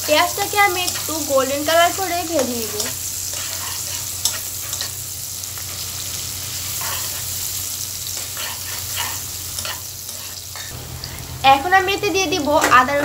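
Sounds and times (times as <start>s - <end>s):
onions sizzling in hot oil: 0.0s - 13.0s
spatula stirring and scraping: 2.6s - 5.0s, 6.6s - 7.4s, 8.0s - 11.3s.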